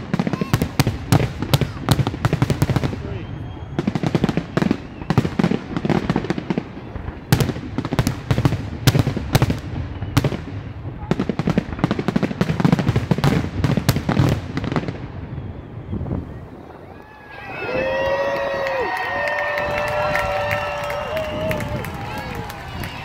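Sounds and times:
firework bursts banging: 0:00.0 - 0:16.6
firework crackling: 0:00.0 - 0:23.0.

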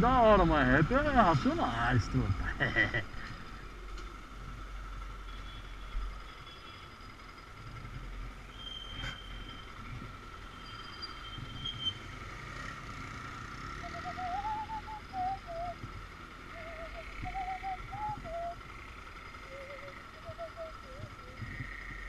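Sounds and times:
motorcycle engine idling: 0:13.1 - 0:22.0
warbling wavering tune: 0:13.8 - 0:15.8, 0:16.4 - 0:18.6, 0:19.3 - 0:21.5.

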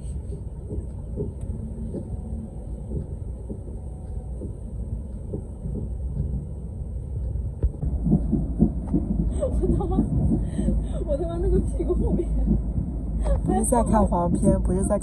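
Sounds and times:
train rumbling: 0:00.0 - 0:15.0
voices: 0:09.4 - 0:12.6, 0:13.2 - 0:15.0.

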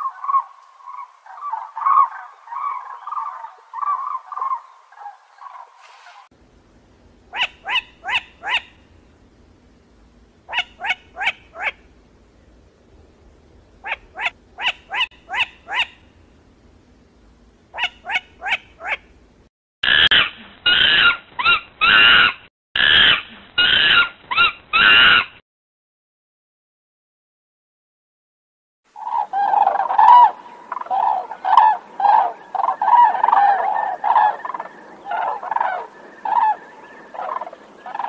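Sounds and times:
cranes trumpeting calls: 0:00.0 - 0:06.3, 0:07.3 - 0:08.9, 0:10.5 - 0:11.9, 0:13.8 - 0:16.0, 0:17.7 - 0:19.0, 0:28.9 - 0:38.0.

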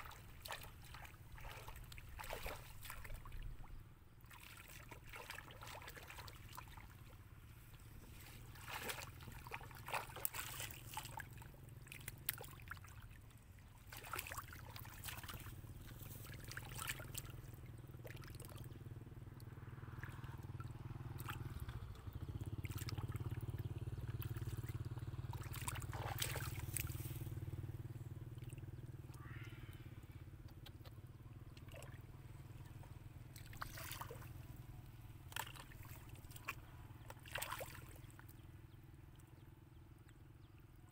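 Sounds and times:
hands splashing in muddy water: 0:00.0 - 0:07.2, 0:08.1 - 0:13.2, 0:13.8 - 0:18.6, 0:22.6 - 0:27.4, 0:31.6 - 0:34.4, 0:35.3 - 0:38.1
low engine drone: 0:00.0 - 0:40.9.

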